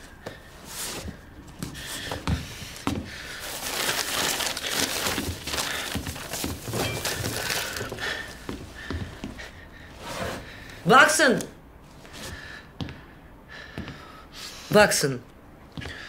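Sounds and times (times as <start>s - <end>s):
paper sheets rustling: 3.4s - 8.4s.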